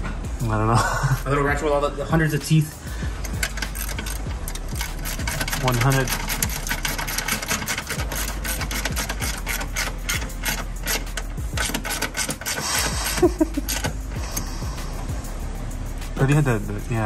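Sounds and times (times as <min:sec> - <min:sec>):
ratchet wrench clicking: 0:03.2 - 0:14.6.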